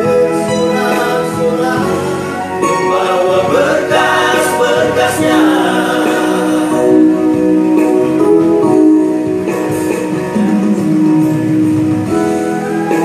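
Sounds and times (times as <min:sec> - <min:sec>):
male vocal group singing: 0:00.0 - 0:07.6
instrumental accompaniment: 0:00.0 - 0:13.0.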